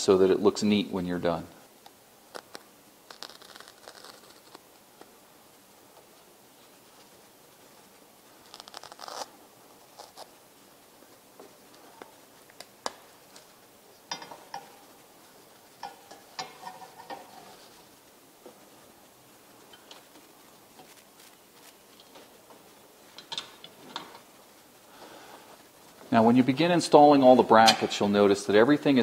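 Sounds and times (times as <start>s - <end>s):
zipper rasping: 2.4s - 4.6s, 8.4s - 10.3s.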